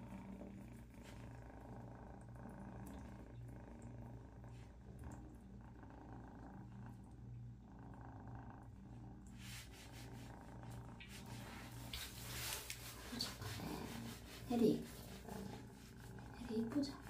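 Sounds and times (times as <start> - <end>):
kitten purring: 0.0 - 17.0
scratchy rubbing: 9.4 - 17.0.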